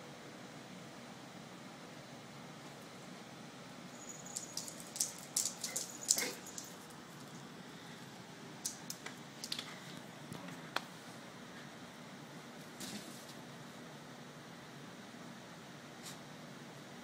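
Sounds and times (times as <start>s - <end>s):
dog claws clicking on floor: 4.3s - 7.3s.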